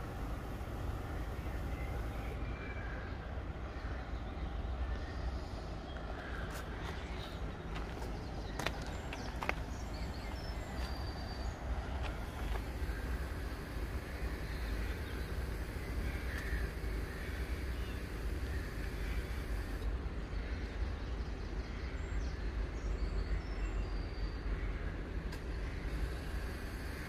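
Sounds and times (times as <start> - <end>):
crows cawing: 15.9 - 19.8.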